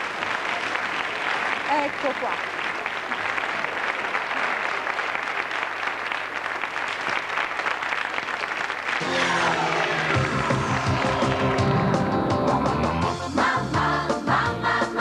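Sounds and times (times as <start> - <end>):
audience applauding: 0.0 - 13.1
theme music: 9.0 - 15.0.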